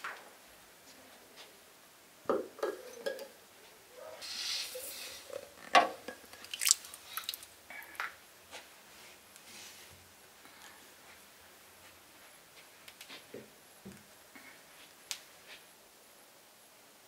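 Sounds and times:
glass jars knocking: 2.3 - 3.4
water splash: 6.4 - 7.5.

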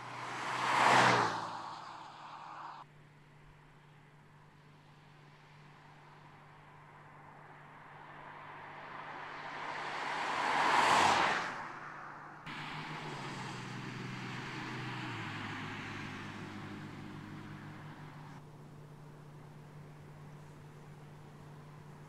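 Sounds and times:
car driving past: 0.0 - 2.8, 6.9 - 18.4
car engine cruising: 0.0 - 2.8, 5.0 - 22.0.

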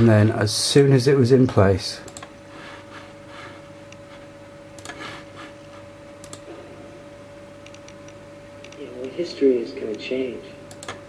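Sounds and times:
quiet electrical hum: 0.0 - 11.0
computer mouse clicks: 4.8 - 5.0, 6.2 - 6.5, 7.6 - 9.2, 10.7 - 11.0.

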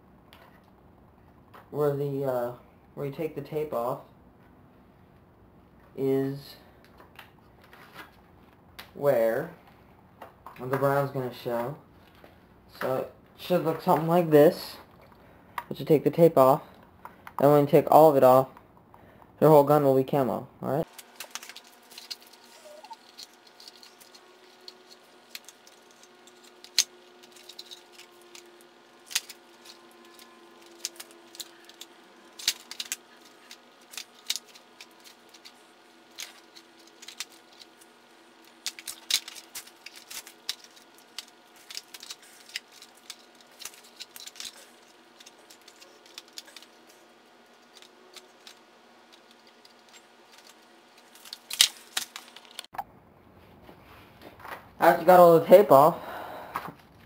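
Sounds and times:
masking tape peeling: 20.9 - 52.7
newspaper crinkling: 20.9 - 52.7.

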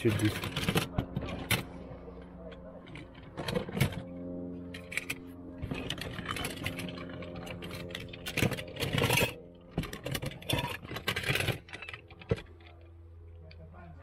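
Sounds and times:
low hum: 0.0 - 14.0
toy cars clattering together: 7.7 - 12.7.

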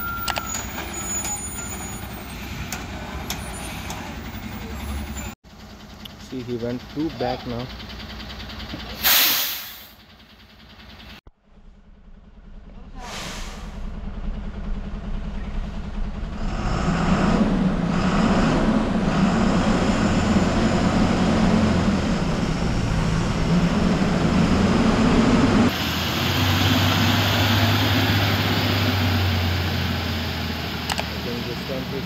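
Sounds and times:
truck diesel engine revving: 12.4 - 32.0.

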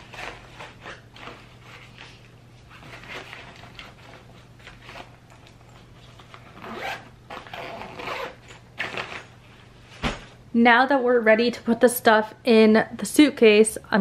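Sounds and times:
zipper being pulled shut: 6.5 - 9.3.

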